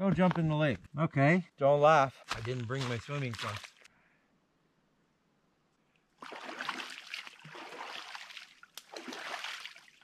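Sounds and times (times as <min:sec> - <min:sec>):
water splashing: 0:02.4 - 0:03.9, 0:06.2 - 0:10.0.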